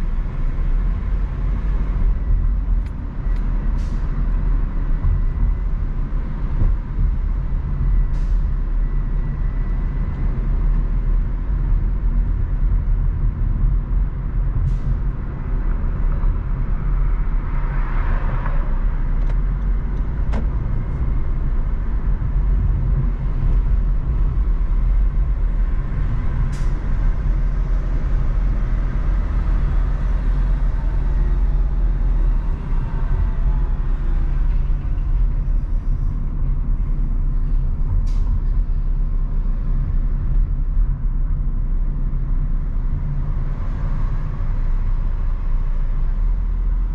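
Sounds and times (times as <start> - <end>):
car road and engine rumble: 0.0 - 46.9.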